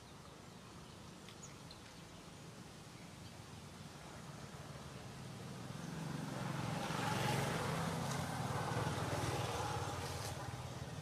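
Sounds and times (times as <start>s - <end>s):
vehicle engine passing: 4.4s - 11.0s.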